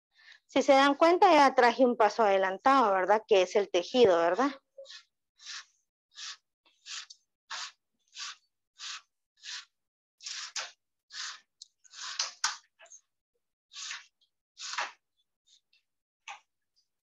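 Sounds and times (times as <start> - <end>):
plastic strip rasping through weave: 4.5 - 13.0, 13.7 - 16.5.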